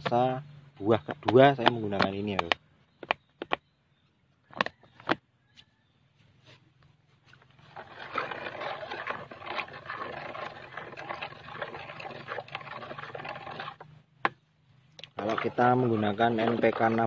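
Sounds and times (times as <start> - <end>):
stick stirring liquid in bucket: 7.3 - 14.4, 15.0 - 17.0.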